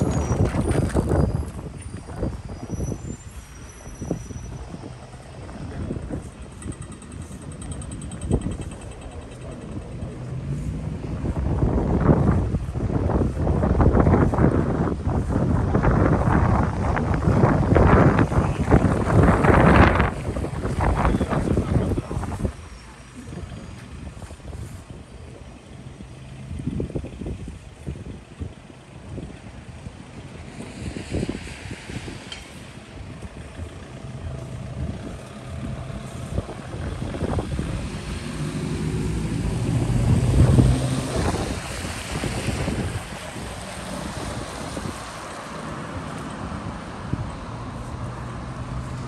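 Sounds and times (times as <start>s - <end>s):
wind buffeting microphone: 0.0s - 49.0s
vehicle engine driving past: 33.6s - 49.0s.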